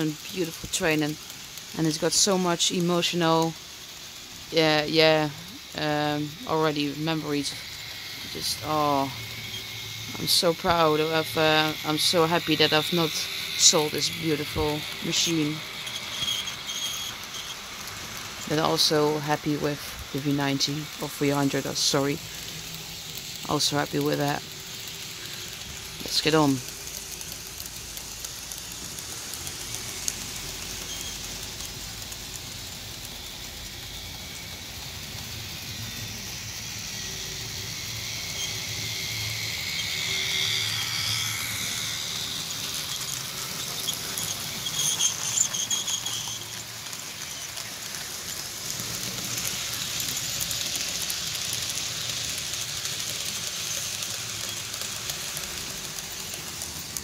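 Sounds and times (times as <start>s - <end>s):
model train wheels rattling on rails: 0.0s - 57.0s
high-pitched wheel squeals: 12.0s - 17.7s, 30.8s - 31.3s, 38.0s - 47.5s.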